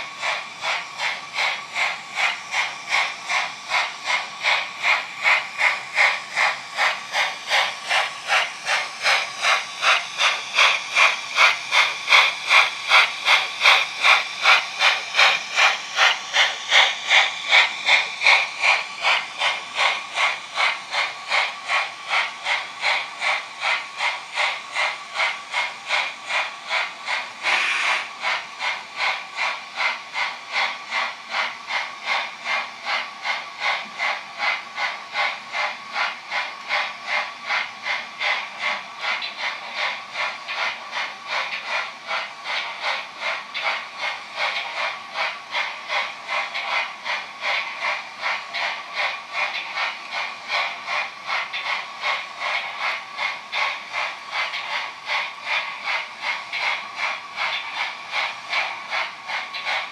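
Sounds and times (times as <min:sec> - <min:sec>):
model steam locomotive chuffing: 0:00.0 - 0:59.9
burst of hiss: 0:27.2 - 0:28.2.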